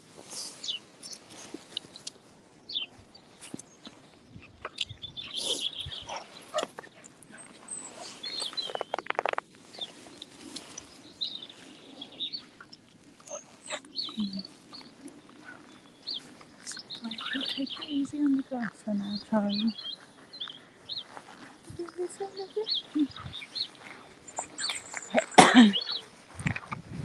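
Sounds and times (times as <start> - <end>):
songbirds chirping: 0.0 - 27.0
clicks and rustles: 8.3 - 10.9.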